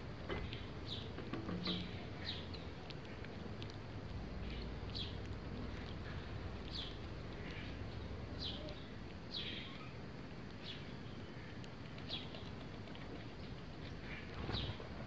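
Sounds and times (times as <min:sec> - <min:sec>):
low background hum: 0:00.0 - 0:15.0
sparrows chirping: 0:00.3 - 0:15.0.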